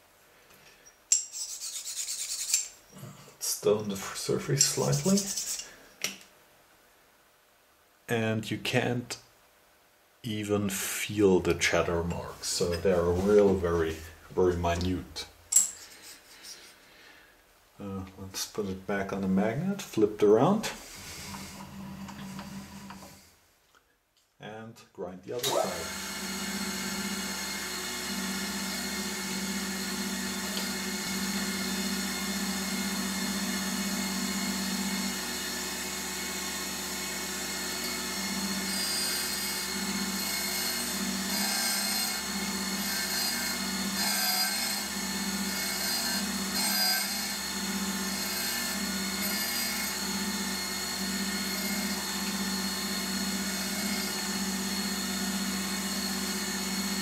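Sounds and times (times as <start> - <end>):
grinding wheel hissing on metal: 4.7 - 5.8
grinder motor humming: 25.4 - 57.0.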